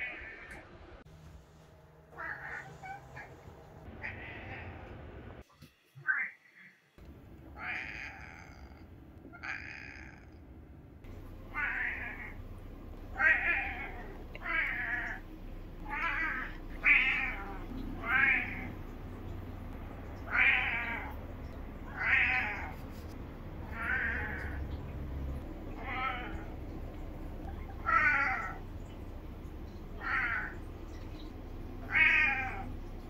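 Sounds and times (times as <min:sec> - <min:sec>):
cat meowing: 0:02.2 - 0:03.4, 0:04.0 - 0:04.9, 0:07.6 - 0:10.3, 0:11.5 - 0:12.4, 0:13.2 - 0:15.2, 0:15.8 - 0:18.8, 0:20.1 - 0:21.2, 0:21.9 - 0:22.8, 0:23.6 - 0:24.7, 0:25.7 - 0:26.5, 0:27.7 - 0:28.9, 0:30.0 - 0:30.6, 0:31.8 - 0:32.8.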